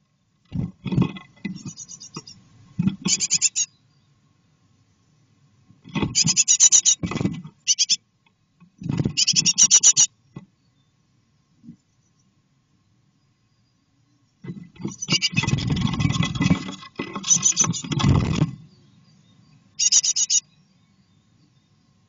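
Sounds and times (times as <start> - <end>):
chicks scratching and fluttering: 0.4 - 3.5, 5.8 - 7.7, 8.8 - 10.4, 14.4 - 18.7
nestlings high-pitched calls: 1.5 - 2.4, 3.0 - 3.8, 6.1 - 7.0, 7.7 - 8.0, 9.1 - 10.1, 14.8 - 15.7, 17.2 - 18.4, 19.8 - 20.6.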